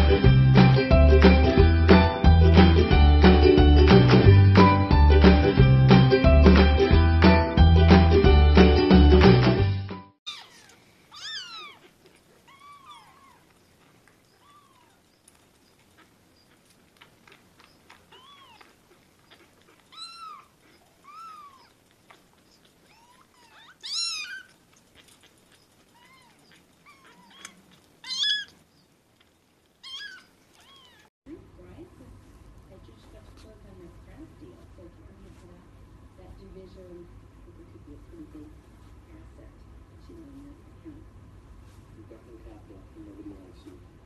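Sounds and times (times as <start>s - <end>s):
kittens mewing: 10.3s - 28.6s, 29.8s - 31.1s.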